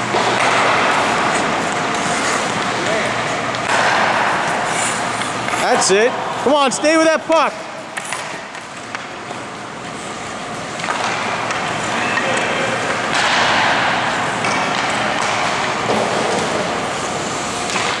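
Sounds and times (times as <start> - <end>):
skate blades scraping ice: 0.2 - 3.1, 3.7 - 5.8.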